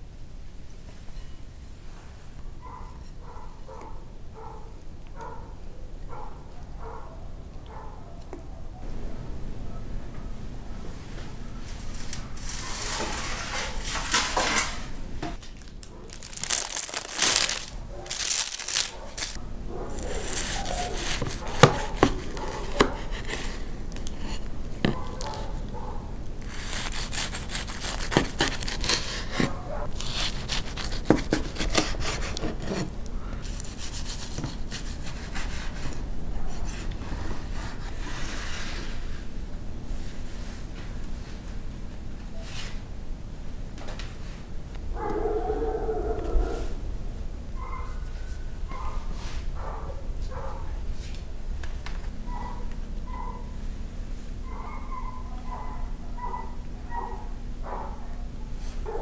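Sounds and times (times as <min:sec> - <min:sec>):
knife sawing through pastry crust: 0:12.4 - 0:14.7, 0:18.2 - 0:25.4, 0:26.4 - 0:39.0.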